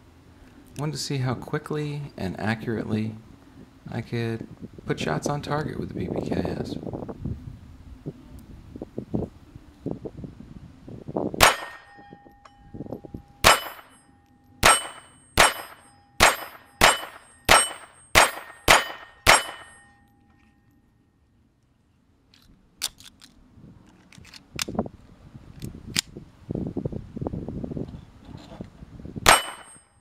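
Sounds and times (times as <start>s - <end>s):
pistol shots: 11.4s - 12.0s, 13.4s - 14.0s, 14.6s - 19.8s, 29.3s - 29.8s
steel plate ringing: 11.4s - 20.4s, 29.3s - 30.0s
pistol handling clicks: 22.3s - 24.8s, 25.6s - 26.1s.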